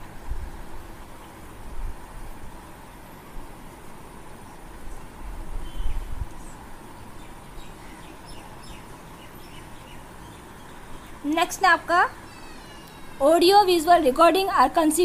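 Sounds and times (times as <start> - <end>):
background hiss: 0.0 - 15.0
faint high falling chirps: 12.1 - 13.4.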